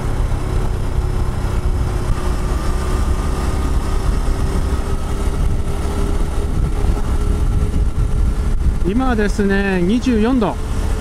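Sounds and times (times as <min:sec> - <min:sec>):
motorcycle engine running: 0:00.0 - 0:11.0
wind rumble on microphone: 0:00.0 - 0:11.0.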